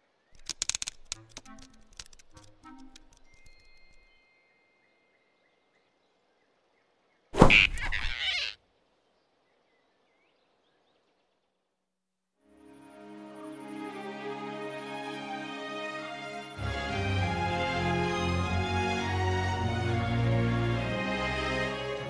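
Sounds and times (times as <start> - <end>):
cartoon snatch sound effect: 7.4 - 8.0.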